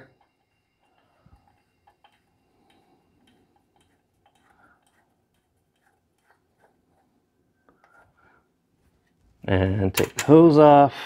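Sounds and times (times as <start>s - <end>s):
faint clicks and ticks: 0.0s - 8.1s.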